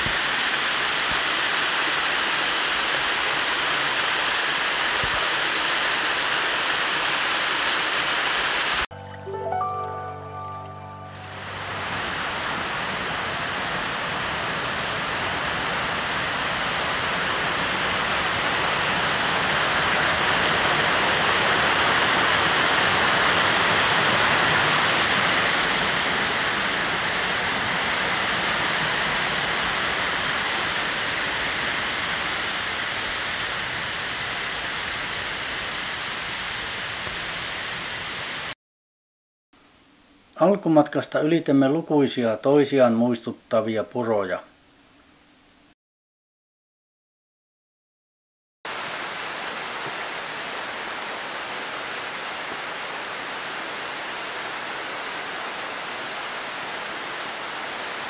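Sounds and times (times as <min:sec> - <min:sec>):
mountain stream rushing: 0:00.0 - 0:38.6, 0:48.7 - 0:58.0.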